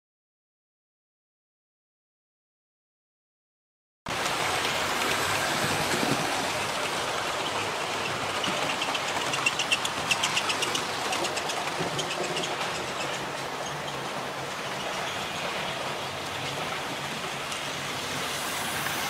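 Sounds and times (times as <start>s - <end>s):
model train rattling on track: 4.1s - 19.0s.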